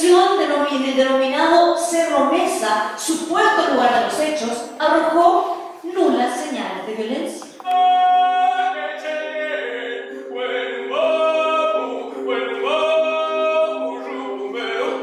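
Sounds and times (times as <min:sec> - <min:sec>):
voices singing long held notes: 0:07.6 - 0:15.0
low vocal drone: 0:08.0 - 0:15.0.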